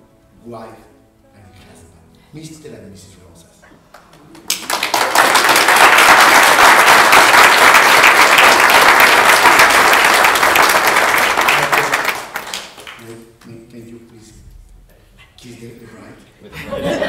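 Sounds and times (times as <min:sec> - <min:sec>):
crowd applauding: 0:03.9 - 0:13.2.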